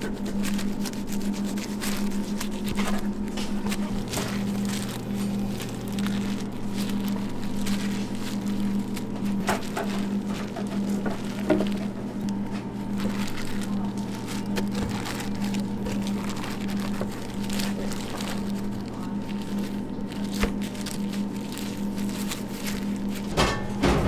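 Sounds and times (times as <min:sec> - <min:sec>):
gloved hands rustling: 0:00.0 - 0:23.5
kitchen equipment humming: 0:00.0 - 0:24.0.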